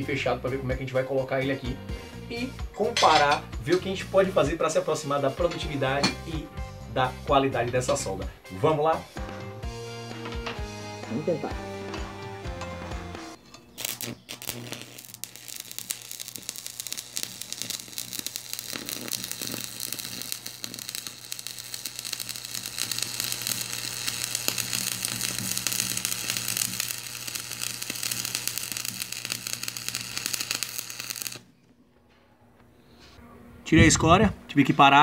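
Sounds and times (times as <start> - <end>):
welding arc crackle and sizzle: 13.8 - 31.5.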